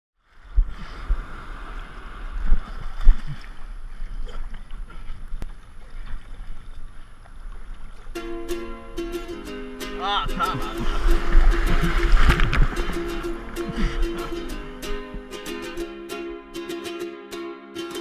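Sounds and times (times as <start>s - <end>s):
water rushing: 0.9s - 17.2s
ukulele music: 8.1s - 18.0s
wind buffeting microphone: 10.7s - 15.4s.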